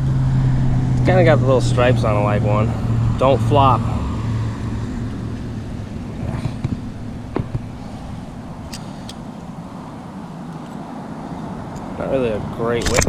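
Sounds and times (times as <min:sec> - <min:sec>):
road traffic rumble: 0:00.0 - 0:13.0
light handling clicks: 0:08.5 - 0:09.3, 0:12.8 - 0:13.0.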